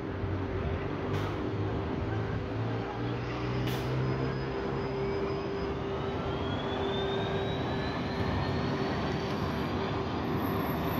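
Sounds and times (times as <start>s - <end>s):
electric bus motor whining: 3.4s - 10.4s.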